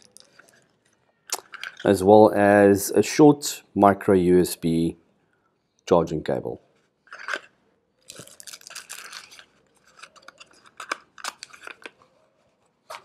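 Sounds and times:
cardboard packaging rustling: 6.9 - 13.0.

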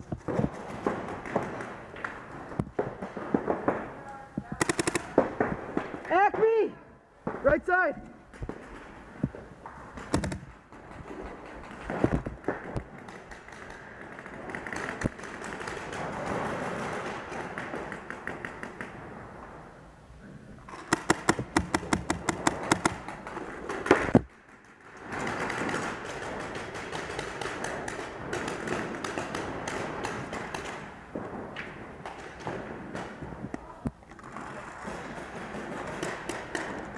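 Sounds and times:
paintball marker firing shots: 4.5 - 6.1, 10.0 - 15.9, 20.7 - 30.9, 34.9 - 36.9.

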